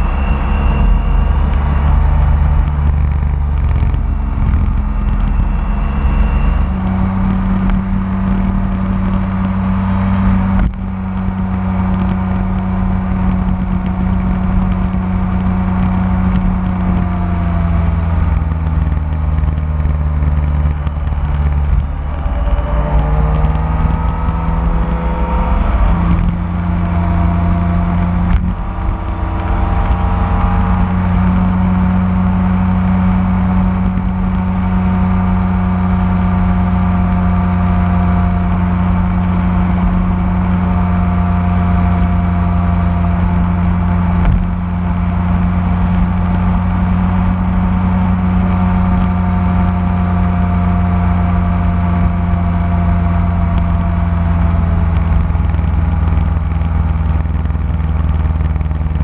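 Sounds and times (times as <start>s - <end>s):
motorcycle engine low drone: 0.0s - 59.0s.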